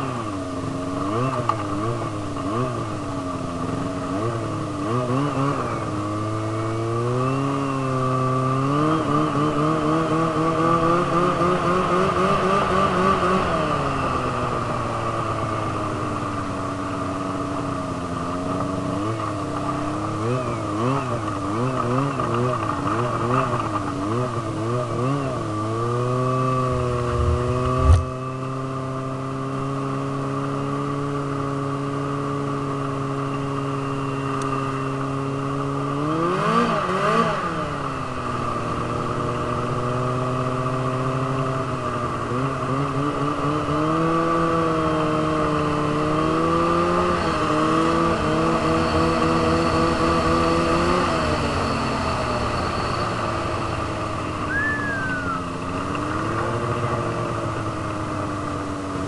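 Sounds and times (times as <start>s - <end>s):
snowmobile engine running: 21.2s - 28.7s, 53.5s - 58.5s
sharp thump: 27.0s - 28.1s.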